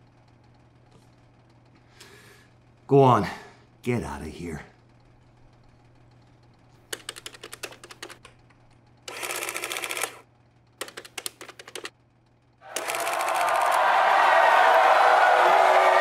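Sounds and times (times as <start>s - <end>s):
faint steady hum: 0.0s - 16.0s
rapid mechanical clicking: 4.9s - 13.8s
crowd cheering: 12.6s - 16.0s.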